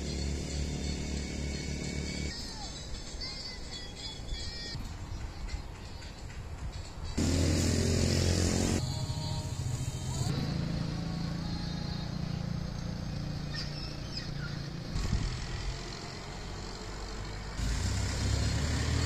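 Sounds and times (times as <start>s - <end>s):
low engine hum: 0.0s - 2.4s, 7.2s - 19.0s
vehicle passing loudly: 7.2s - 19.0s.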